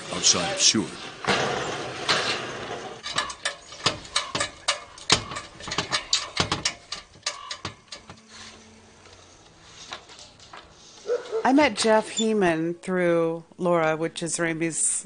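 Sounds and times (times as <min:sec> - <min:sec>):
sharp clicks and knocks: 0:03.0 - 0:08.2.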